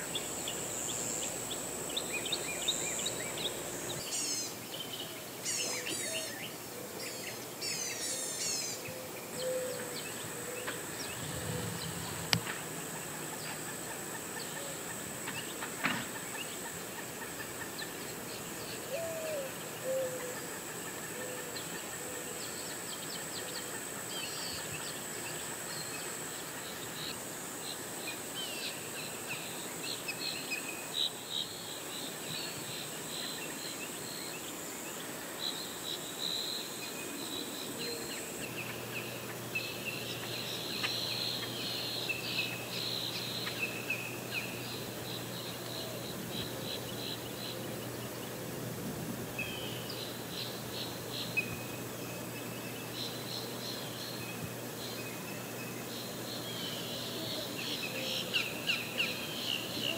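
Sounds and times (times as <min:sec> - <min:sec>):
birds chirping: 0:00.0 - 0:14.7.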